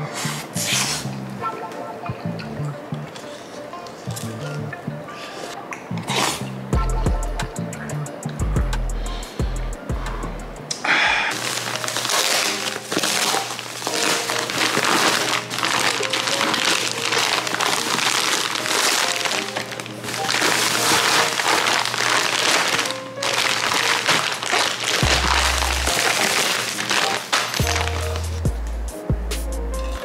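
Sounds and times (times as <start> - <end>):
background music: 0.0 - 30.0
plastic packaging crinkling: 11.3 - 28.5.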